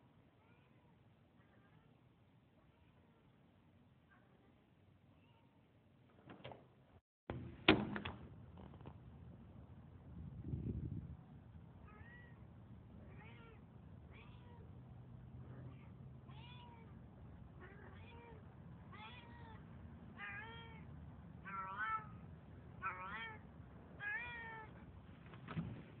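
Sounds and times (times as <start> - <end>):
cat meowing: 11.9 - 12.4, 13.1 - 14.7, 15.7 - 16.9, 17.6 - 19.6, 20.2 - 22.2, 22.8 - 24.8.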